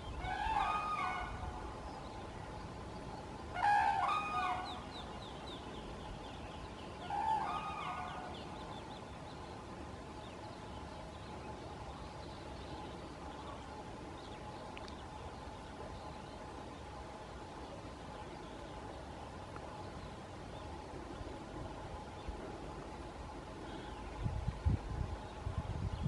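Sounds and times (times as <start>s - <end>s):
cranes bugling calls: 0.2s - 1.7s, 3.5s - 4.9s, 7.0s - 8.6s.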